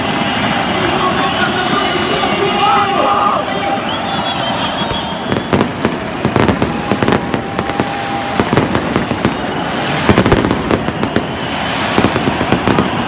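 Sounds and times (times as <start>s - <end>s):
fireworks bangs and pops: 0.0s - 3.2s, 4.0s - 13.0s.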